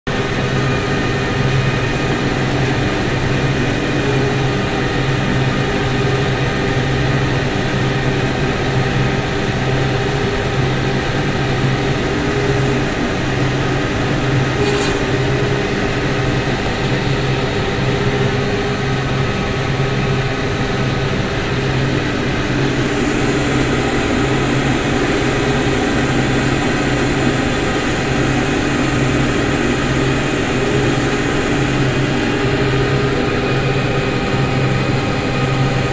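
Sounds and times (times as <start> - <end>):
cotton picker engine droning: 0.1 - 35.9
high hiss: 12.0 - 13.1, 14.5 - 15.4.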